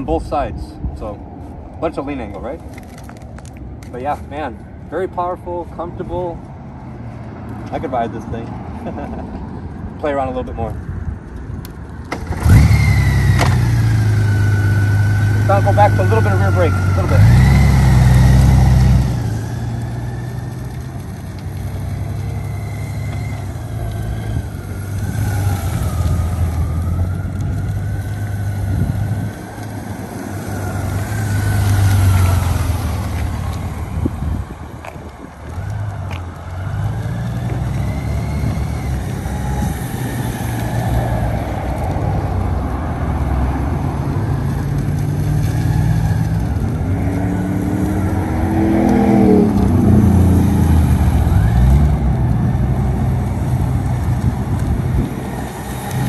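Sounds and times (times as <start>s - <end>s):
motorcycle engine at low speed: 12.0s - 42.5s, 44.0s - 56.0s.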